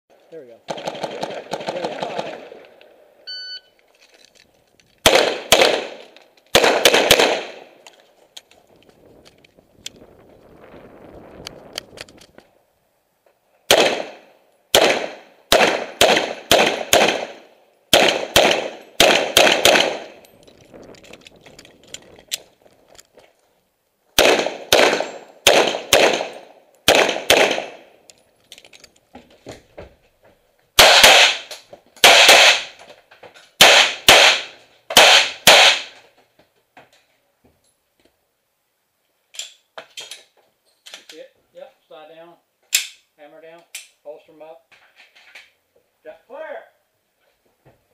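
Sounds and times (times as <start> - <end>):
pistol shots: 5.0 - 7.8, 13.7 - 20.2, 24.2 - 27.9, 30.8 - 32.7, 33.6 - 36.0.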